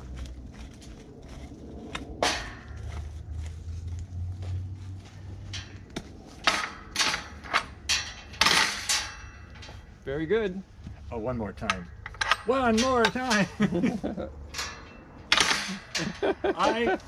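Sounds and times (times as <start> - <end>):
metal gate clanging: 2.2 - 2.8, 5.4 - 10.0, 11.6 - 13.6, 14.4 - 16.9.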